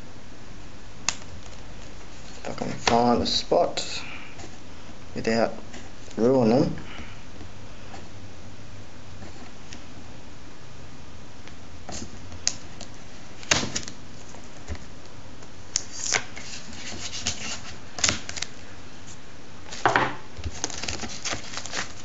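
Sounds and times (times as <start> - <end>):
crinkling plastic wrapping: 15.8 - 18.7, 19.7 - 22.0.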